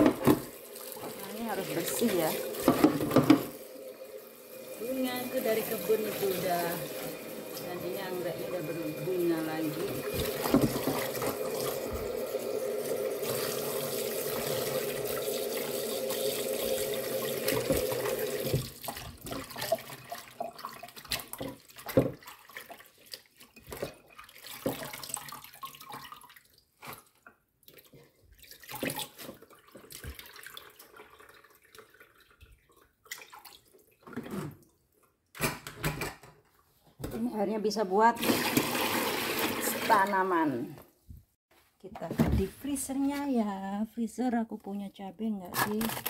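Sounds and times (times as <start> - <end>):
tap running into pot: 2.6 - 3.6, 10.0 - 12.2
water splashes and drips: 9.5 - 34.8.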